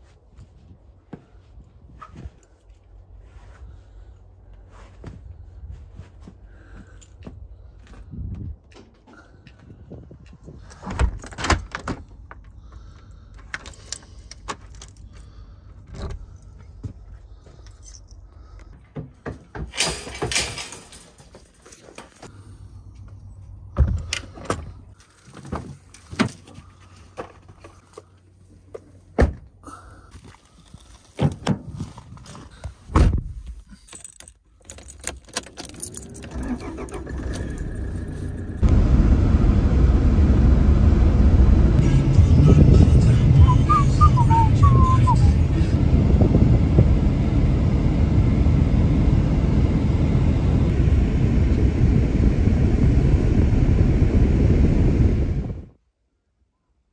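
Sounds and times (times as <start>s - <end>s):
keys jangling: 13.0s - 16.8s, 17.6s - 18.4s, 33.7s - 38.3s
door lock and handle clicking: 34.1s - 36.6s
steady low sound: 37.8s - 55.8s.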